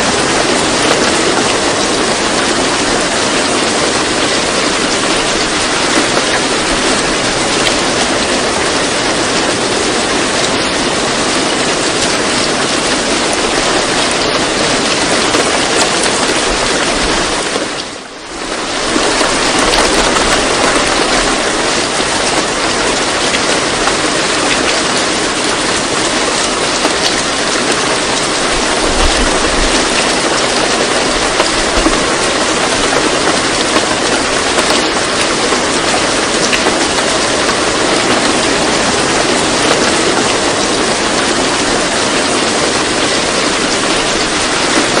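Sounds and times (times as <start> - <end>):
heavy rain hissing: 0.0 - 45.0.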